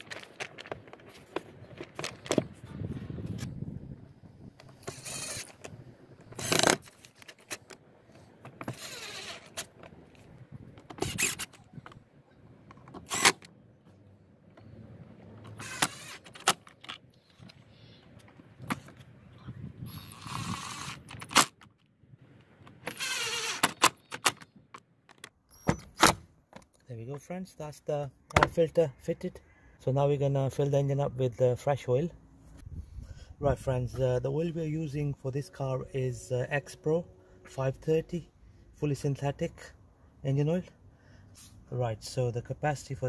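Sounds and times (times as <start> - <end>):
cordless impact driver: 6.3 - 6.9, 13.0 - 13.5, 15.5 - 16.5, 19.9 - 21.5, 22.9 - 24.0.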